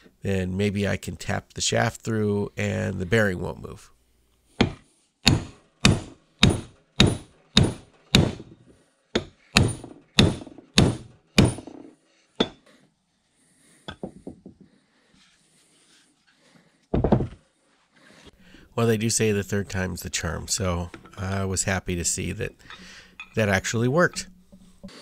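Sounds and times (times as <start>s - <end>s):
hammer striking steel shaft: 4.6s - 8.4s, 22.6s - 24.4s.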